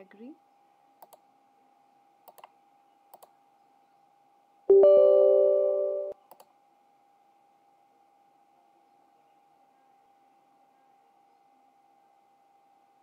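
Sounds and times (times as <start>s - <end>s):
electronic chime: 4.7s - 6.2s.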